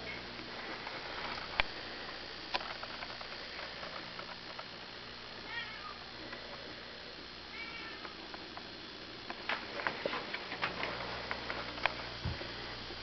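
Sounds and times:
cat meowing: 0:05.5 - 0:06.0, 0:07.5 - 0:08.0.

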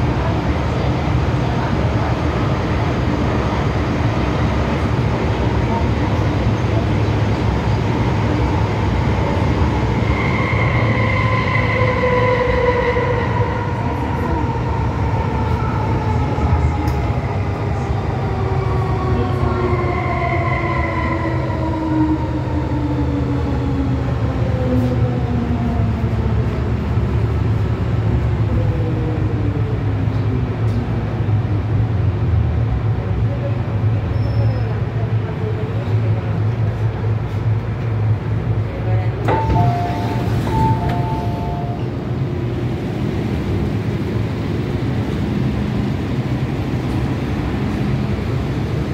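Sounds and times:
wheels rumbling on track: 0:21.5 - 0:48.9.

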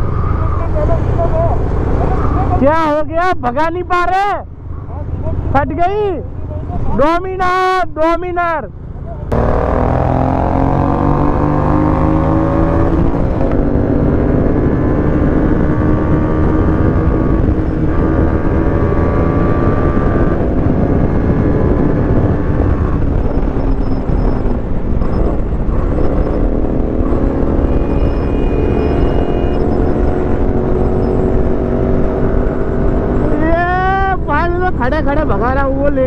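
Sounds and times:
motorcycle engine at full throttle: 0:09.0 - 0:36.0
wind rush on microphone: 0:09.6 - 0:36.0.

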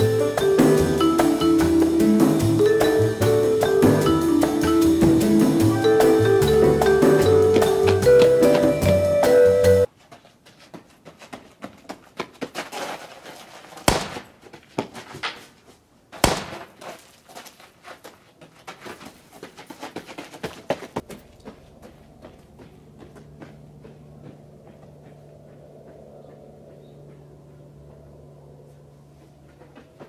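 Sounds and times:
music: 0:00.0 - 0:09.9
small knocks and scuffs: 0:10.0 - 0:27.3
loud sharp bangs: 0:13.9 - 0:14.3, 0:16.2 - 0:16.8.

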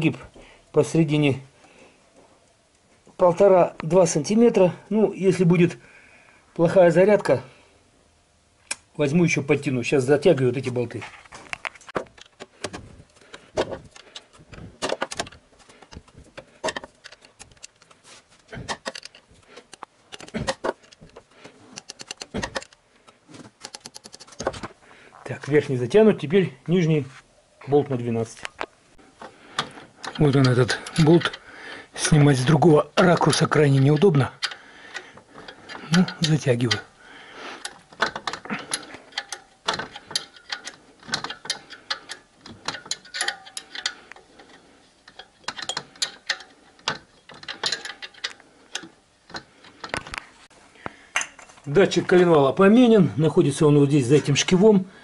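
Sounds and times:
ratchet wrench clicking: 0:33.2 - 0:36.9, 0:37.6 - 0:44.5, 0:45.1 - 0:49.4.

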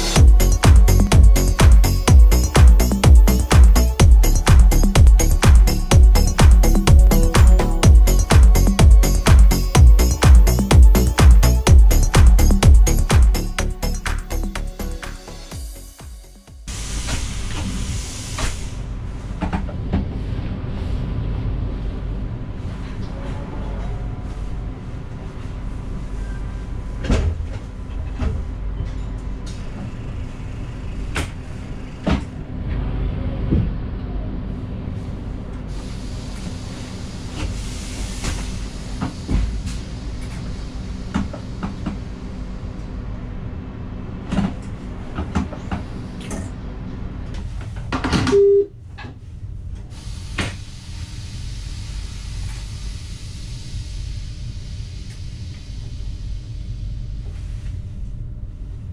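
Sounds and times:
train rumble and hum: 0:00.0 - 0:58.9
short beep: 0:48.3 - 0:48.8.

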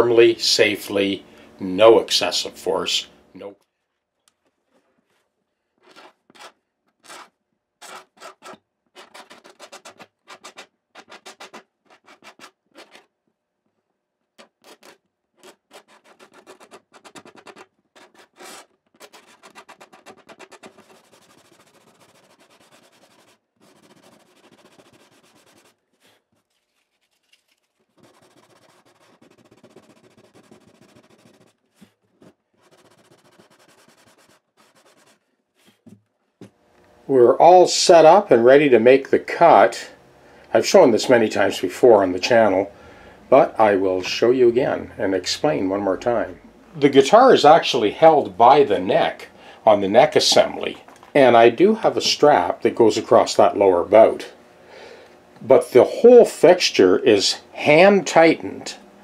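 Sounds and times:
hands rubbing wooden guitar bridge: 0:14.4 - 0:36.0.

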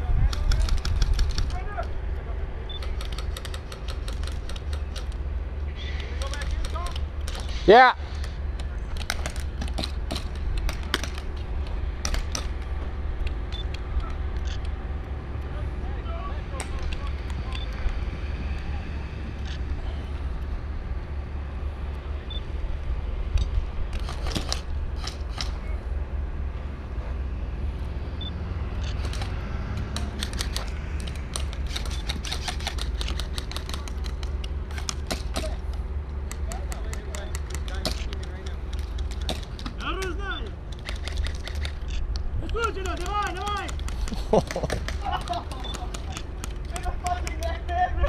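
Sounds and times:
wind buffeting microphone: 0:00.0 - 0:02.6.

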